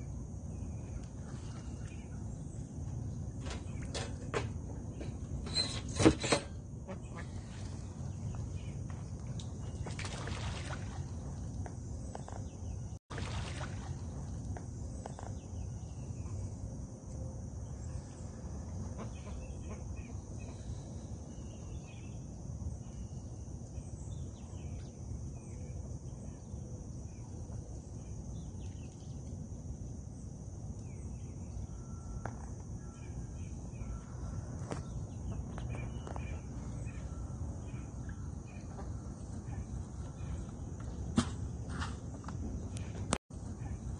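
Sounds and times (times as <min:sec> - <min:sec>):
faint bird chirps: 0:30.8 - 0:40.6.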